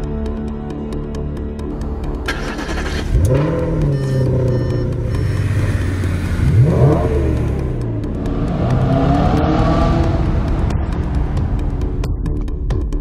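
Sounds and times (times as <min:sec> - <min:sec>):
car engine starting and idling: 0:01.7 - 0:12.4
engine rev blip: 0:02.3 - 0:07.7.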